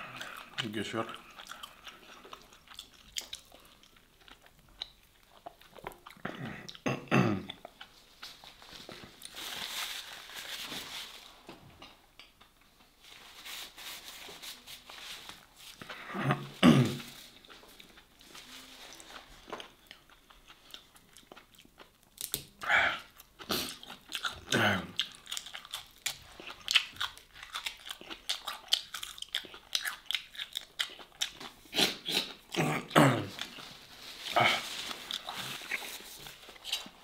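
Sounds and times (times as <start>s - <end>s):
person chewing and smacking food: 0.1s - 8.3s, 19.4s - 33.6s, 35.1s - 37.0s.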